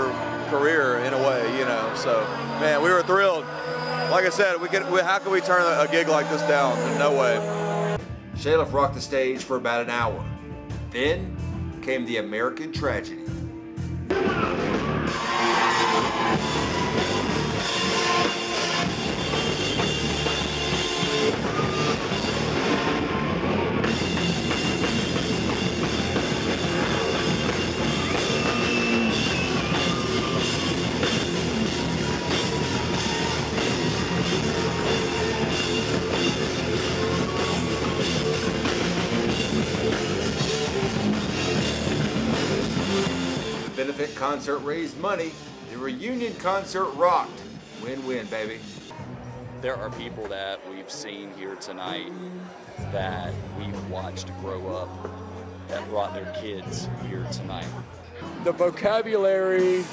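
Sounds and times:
rock band playing live: 13.3 - 50.4.

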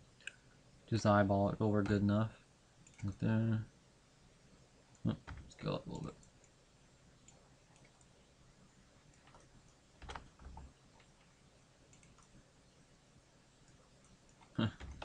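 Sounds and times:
computer mouse and keyboard clicks: 7.2 - 8.1, 9.1 - 11.3, 11.9 - 12.4.

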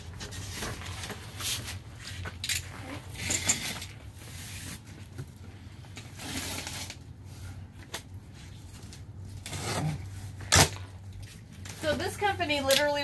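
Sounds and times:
cardboard rustling and scraping: 0.0 - 2.2, 2.8 - 12.1
box cutter cutting packing tape: 9.4 - 10.9.

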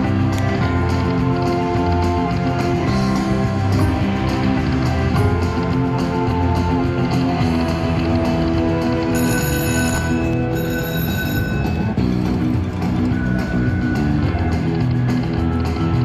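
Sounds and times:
slot machine looping music: 0.0 - 16.0.

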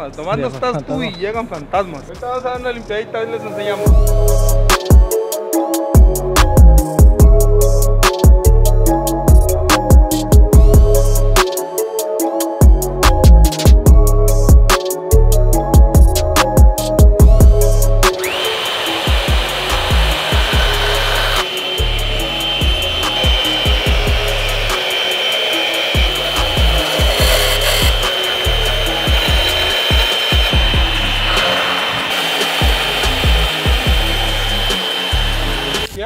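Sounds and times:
music with bass beat: 3.9 - 5.2, 5.9 - 11.8, 12.6 - 18.3, 19.2 - 25.2, 26.0 - 31.4, 32.5 - 36.0
power saw cutting metal: 18.0 - 36.0.

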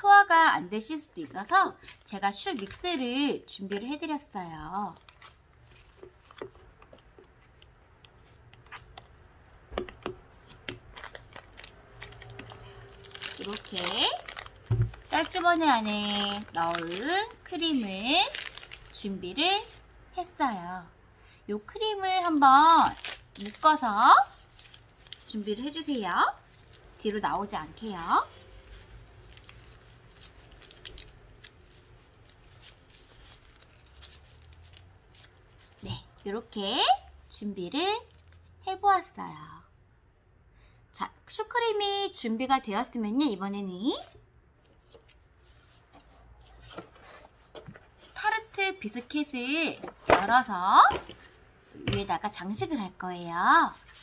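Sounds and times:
plastic bag rustling: 1.0 - 3.8, 4.8 - 19.8, 22.2 - 36.2, 44.0 - 51.8.

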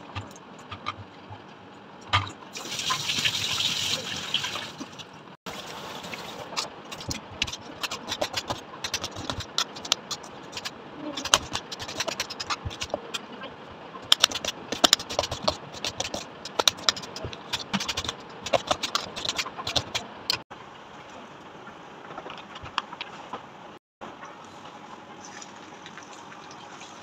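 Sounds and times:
knife chopping on stone countertop: 7.0 - 13.2, 14.1 - 20.0.

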